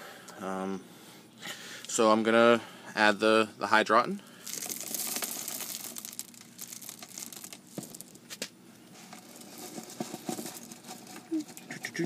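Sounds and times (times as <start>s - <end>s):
clay pebbles clicking and rattling: 4.4s - 11.7s.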